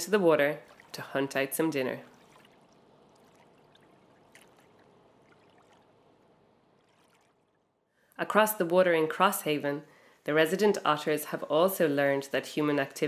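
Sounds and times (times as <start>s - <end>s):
faint water lapping: 0.5s - 7.8s.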